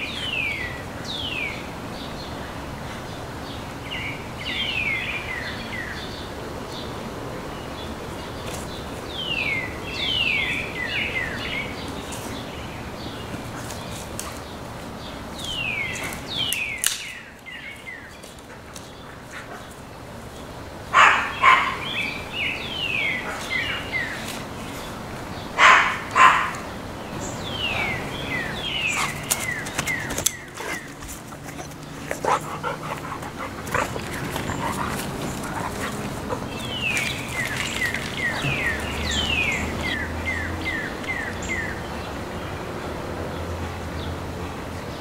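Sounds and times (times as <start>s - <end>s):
puppy barking: 20.9s - 21.9s, 25.6s - 26.7s, 30.7s - 36.8s.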